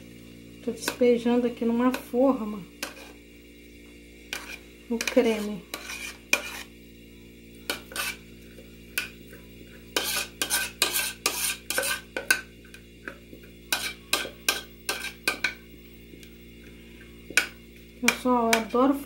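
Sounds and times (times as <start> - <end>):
metal spoon scraping saucepan: 2.8 - 3.2, 4.3 - 6.8, 7.6 - 8.3, 8.9 - 15.6, 17.3 - 18.9.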